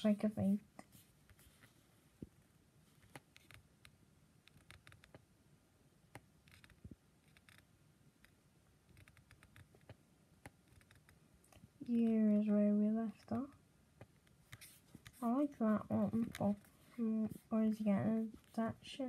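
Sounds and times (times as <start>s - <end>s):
laptop clicks and taps: 6.1s - 7.6s.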